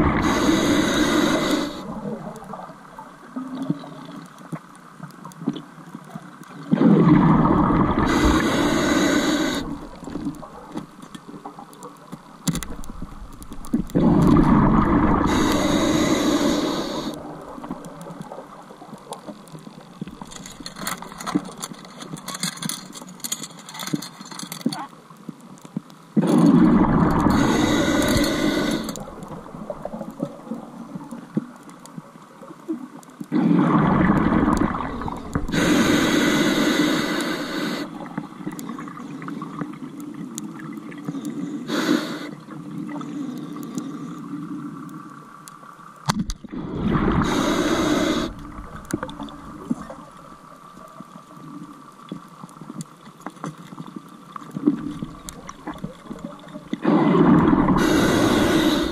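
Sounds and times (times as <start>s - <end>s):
diver breathing through regulator: 0.0s - 2.1s, 7.8s - 10.2s, 14.0s - 17.3s, 27.2s - 29.2s, 33.4s - 38.1s, 41.2s - 42.4s, 46.9s - 49.3s, 56.8s - 58.9s
faint steady hiss: 0.0s - 58.9s
bubbling: 6.4s - 23.0s, 26.2s - 31.6s, 33.3s - 41.1s, 46.1s - 52.8s, 53.5s - 58.9s.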